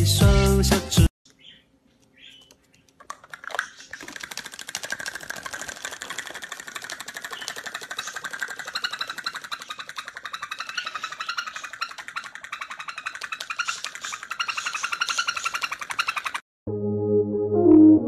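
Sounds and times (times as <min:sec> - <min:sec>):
music: 0:00.0 - 0:01.1, 0:16.7 - 0:18.0
rapid clicking rattle: 0:02.9 - 0:16.4.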